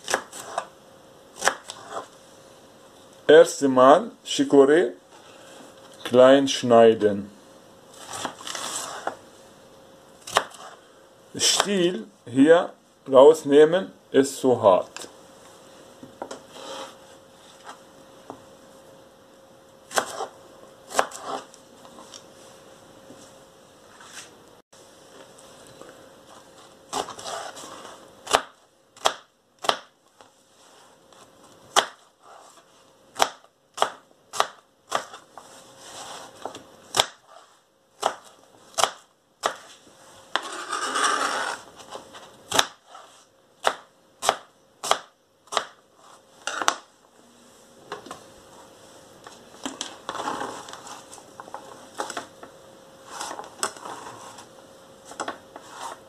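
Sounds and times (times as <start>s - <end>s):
knife chopping on cutting board: 19.9s - 20.3s, 20.9s - 21.5s.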